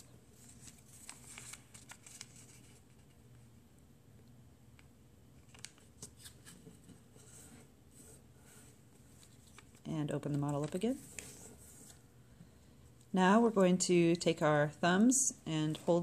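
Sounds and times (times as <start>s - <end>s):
paper rustling and crinkling: 0.1s - 3.3s, 5.4s - 12.1s.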